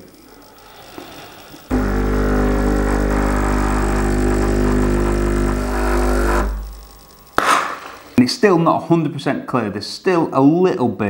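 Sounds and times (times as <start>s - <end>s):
espresso machine pump buzzing: 0.0s - 8.2s.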